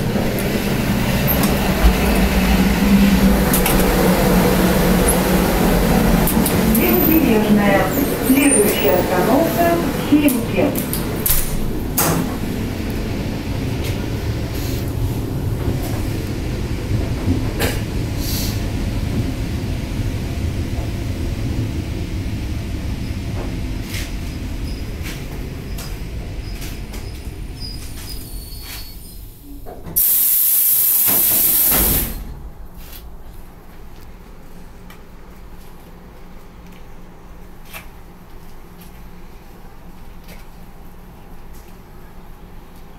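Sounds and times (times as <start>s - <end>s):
electric train rumbling: 0.0s - 42.9s
compressed air hiss of doors: 30.0s - 32.3s.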